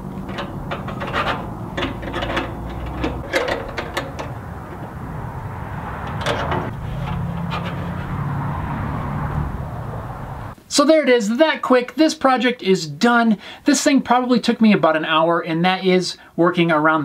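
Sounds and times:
low steady rumble: 0:00.0 - 0:10.6.

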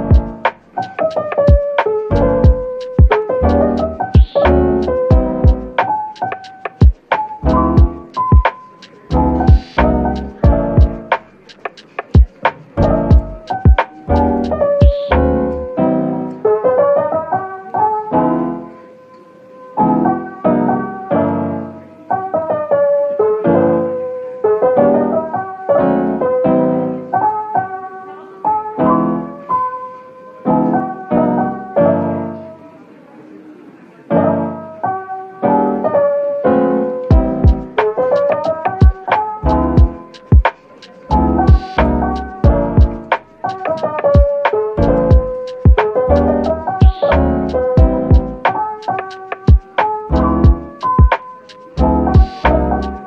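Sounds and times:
drum beat: 0:00.0 - 0:03.2, 0:03.8 - 0:15.2, 0:37.1 - 0:44.3, 0:45.1 - 0:45.9, 0:46.8 - 0:49.8, 0:50.4 - 0:51.6, 0:52.2 - 0:53.0
piano melody: 0:00.0 - 0:53.0.

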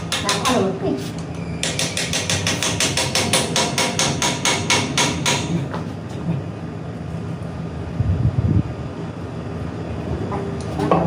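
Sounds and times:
rapid sharp tool taps: 0:01.6 - 0:05.5.

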